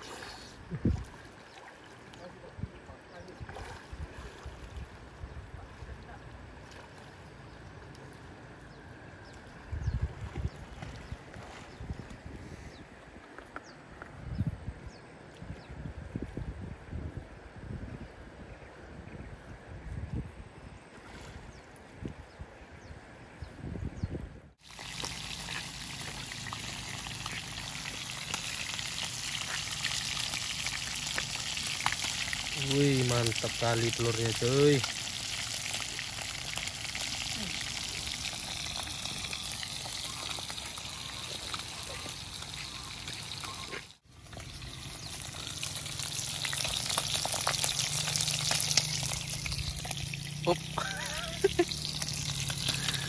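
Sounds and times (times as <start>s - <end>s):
river water splashing: 0.0s - 8.6s, 9.3s - 12.4s, 24.6s - 53.0s
fish frying in hot oil: 24.6s - 53.0s.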